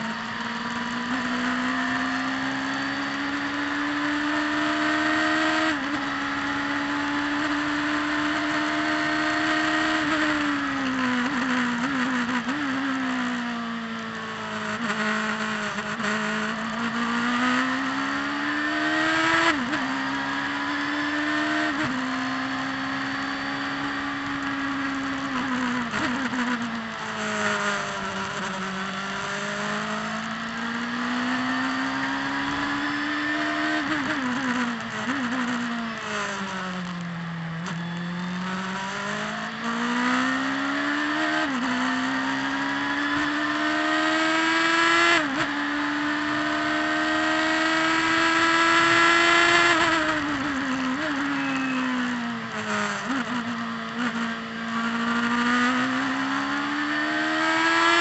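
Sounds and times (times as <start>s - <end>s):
race car engine accelerating: 0.0s - 58.0s.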